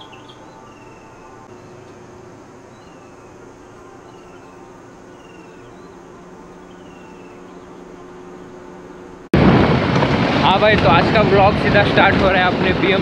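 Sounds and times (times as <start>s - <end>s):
high falling chirp: 0.0s - 8.6s
faint steady hum: 0.0s - 9.3s.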